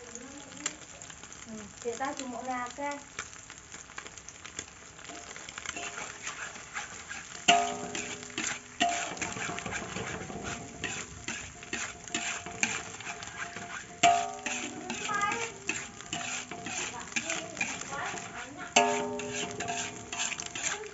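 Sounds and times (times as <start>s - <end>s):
metal spatula scraping a wok: 5.1s - 20.9s
spatula knocking wok ringing: 5.1s - 20.9s.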